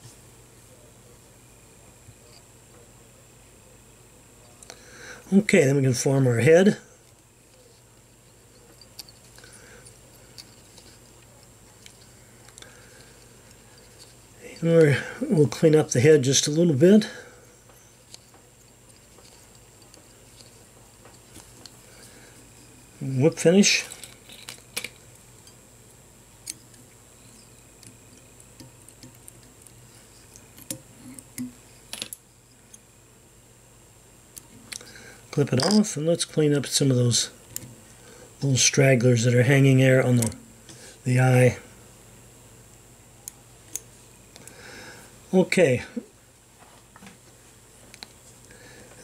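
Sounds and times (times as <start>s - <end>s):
faint steady hum: 0.0s - 49.0s.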